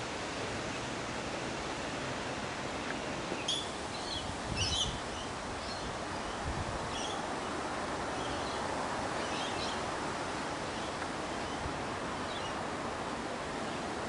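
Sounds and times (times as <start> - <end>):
rustling leaves: 0.0 - 14.0
bird chirps: 3.4 - 5.8
wind on microphone: 4.1 - 7.3.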